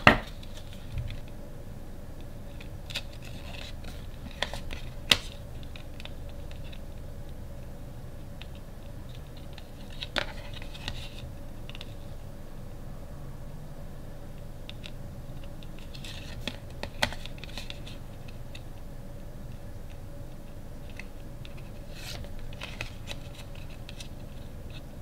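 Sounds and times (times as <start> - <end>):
steady low hum: 0.0 - 25.0
cardboard cards being flipped: 2.5 - 6.8, 8.4 - 11.9, 14.8 - 18.6, 20.9 - 24.8.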